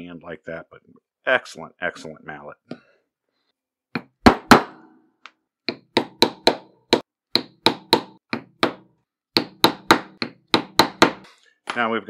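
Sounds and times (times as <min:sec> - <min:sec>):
mallet striking hole punch: 0:04.0 - 0:05.0, 0:05.7 - 0:08.8, 0:09.4 - 0:11.2.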